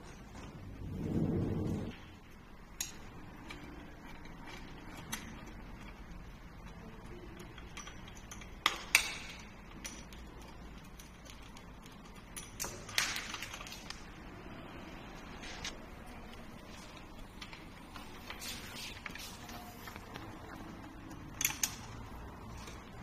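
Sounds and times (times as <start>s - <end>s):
metallic tool clicks and clinks: 6.6s - 14.0s, 20.8s - 23.0s.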